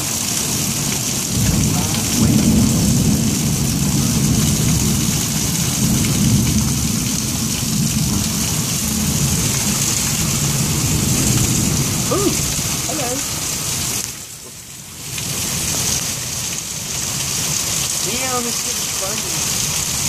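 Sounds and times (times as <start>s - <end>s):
thunder rumbling: 0.0s - 13.5s
heavy rain hissing: 0.0s - 20.0s.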